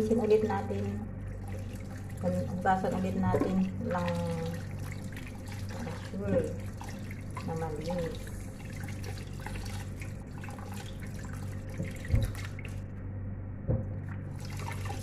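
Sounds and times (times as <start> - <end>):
faint low hum: 0.0 - 15.0
tap water splashing into basin: 2.9 - 12.8.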